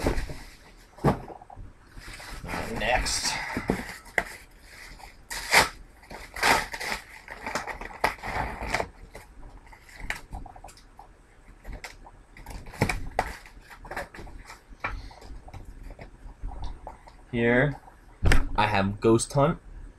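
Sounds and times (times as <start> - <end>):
packaging crinkling and rustling: 2.0 - 10.8.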